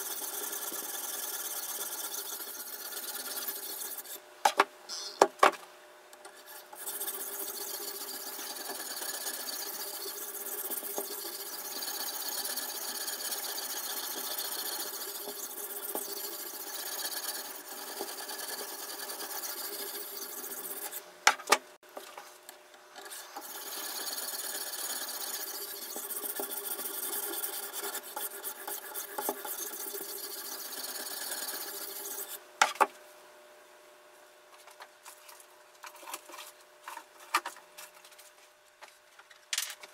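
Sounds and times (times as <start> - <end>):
sharpening stone scraping knife: 0.0 - 4.2, 6.6 - 21.0, 23.3 - 32.4.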